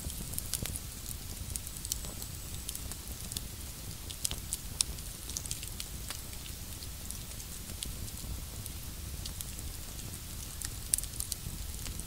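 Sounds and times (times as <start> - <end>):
burning wood popping: 0.0 - 8.2
campfire crackling: 0.0 - 12.0.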